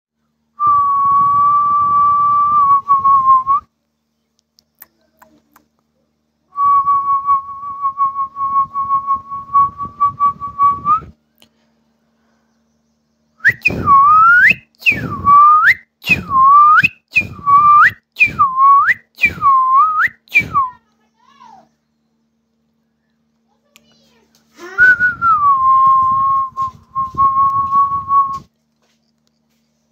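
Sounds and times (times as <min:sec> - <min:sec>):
person whistling: 0:06.6 - 0:11.1, 0:13.4 - 0:20.7, 0:24.6 - 0:28.5.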